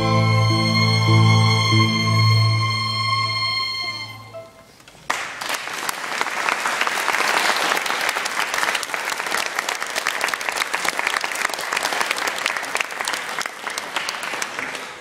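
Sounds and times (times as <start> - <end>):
string orchestra held note: 0.0 - 4.7
audience applause: 5.0 - 15.0.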